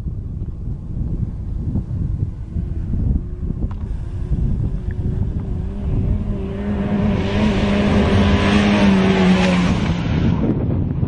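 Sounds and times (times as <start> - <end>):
wind buffeting microphone: 0.0 - 11.0
truck engine passing: 2.2 - 10.5.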